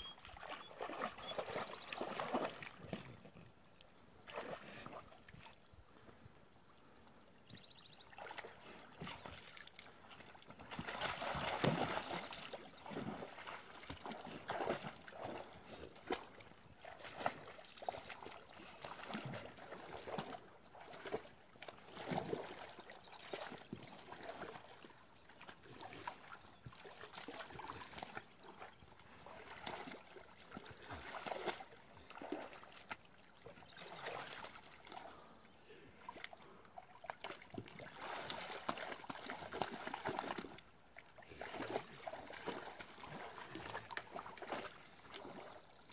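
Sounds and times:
dog splashing through water: 0:00.1 - 0:03.3, 0:04.3 - 0:05.0, 0:10.6 - 0:24.8, 0:37.1 - 0:40.6, 0:41.3 - 0:45.6.

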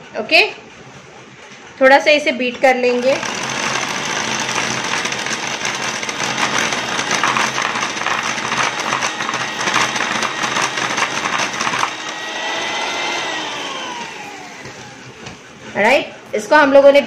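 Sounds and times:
beaters clattering against bowl: 0:02.6 - 0:12.2
electric hand mixer motor: 0:02.8 - 0:15.5.

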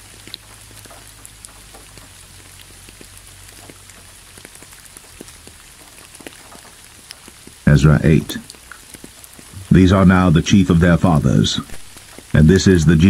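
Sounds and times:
raindrops ticking: 0:00.0 - 0:13.0
steady rain falling: 0:00.0 - 0:13.0.

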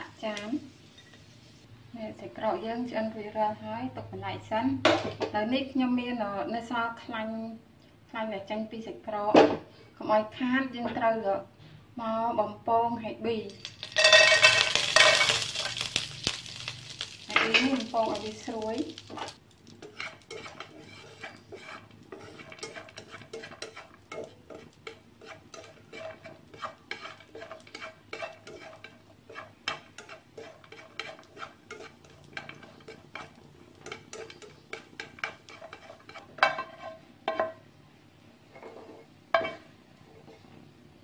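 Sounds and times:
pan knocking: 0:13.8 - 0:16.7
spatula scraping a metal wok: 0:13.8 - 0:37.5, 0:38.5 - 0:40.6.

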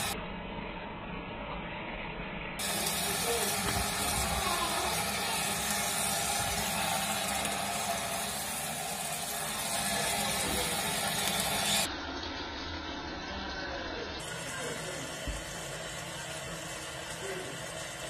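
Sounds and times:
fish being rinsed by hand: 0:02.6 - 0:11.9
tap running into sink: 0:15.2 - 0:15.5.

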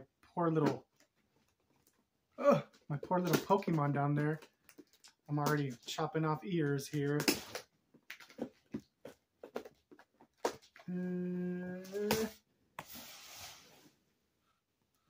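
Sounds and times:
person humming: 0:10.8 - 0:12.4.

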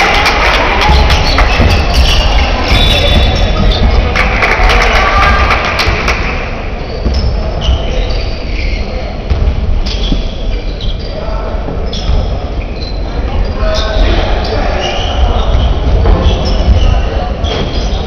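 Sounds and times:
basketball bouncing: 0:00.0 - 0:06.3
sneakers squeaking: 0:00.0 - 0:18.0
voices: 0:00.0 - 0:18.0.

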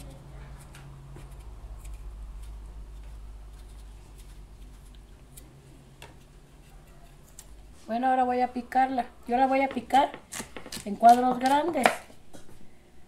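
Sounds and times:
knife scraping potato skin: 0:00.5 - 0:05.6, 0:09.9 - 0:12.0.

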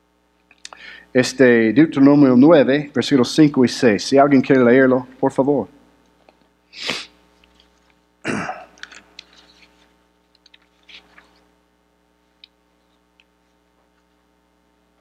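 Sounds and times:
faint steady hum: 0:00.0 - 0:15.0
paper rustling: 0:08.8 - 0:11.5.

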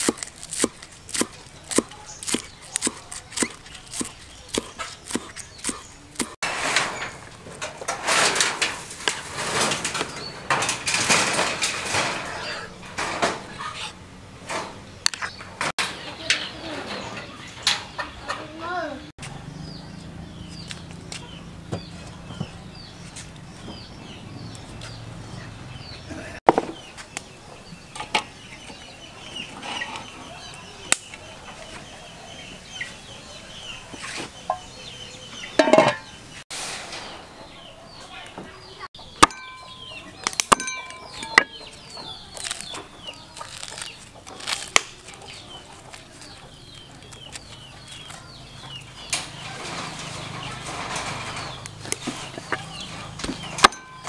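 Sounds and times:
chickens clucking: 0:00.0 - 0:54.0
metal cookware clinking: 0:35.6 - 0:36.2, 0:39.2 - 0:41.7, 0:49.2 - 0:54.0
high bird chirps: 0:38.7 - 0:44.0.

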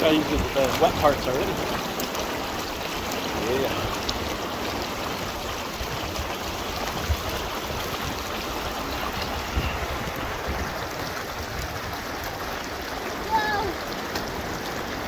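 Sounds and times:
creek water rushing: 0:00.0 - 0:15.0.

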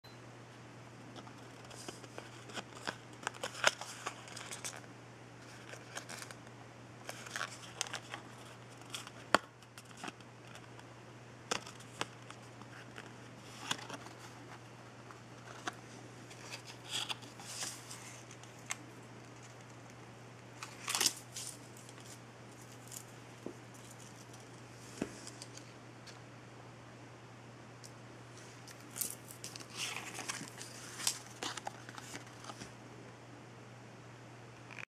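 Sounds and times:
steady low hum: 0:00.0 - 0:34.9
paper card crinkling: 0:01.2 - 0:10.9, 0:11.5 - 0:20.0, 0:20.6 - 0:25.7, 0:28.6 - 0:32.7.

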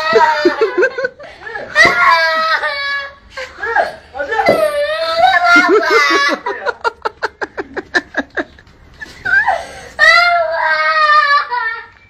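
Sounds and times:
child crying and sobbing: 0:00.0 - 0:06.5, 0:09.3 - 0:12.0.

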